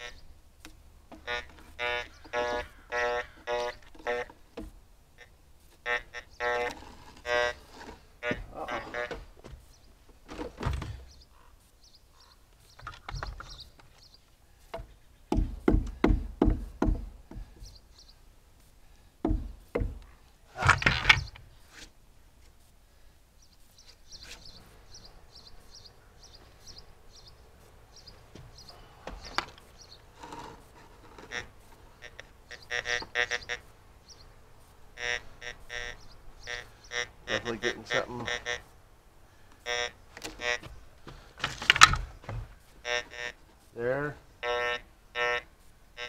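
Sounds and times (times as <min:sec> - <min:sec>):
wood knocking on wood: 0:03.4 - 0:04.8, 0:07.8 - 0:09.7, 0:14.7 - 0:17.7, 0:19.2 - 0:21.4, 0:40.2 - 0:42.6.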